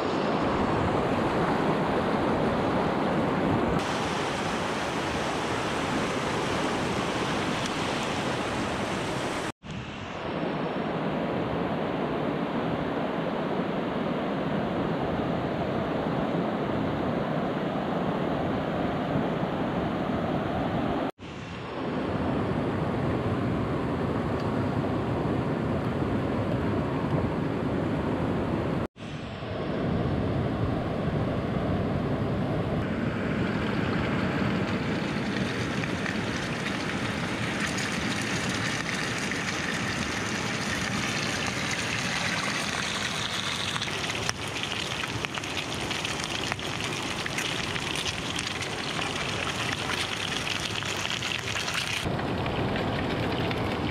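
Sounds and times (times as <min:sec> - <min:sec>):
stream water rushing: 0:00.0 - 0:10.6, 0:32.8 - 0:53.9.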